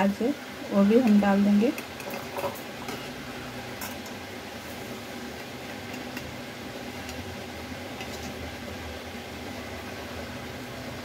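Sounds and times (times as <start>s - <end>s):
low background hum: 0.0s - 11.0s.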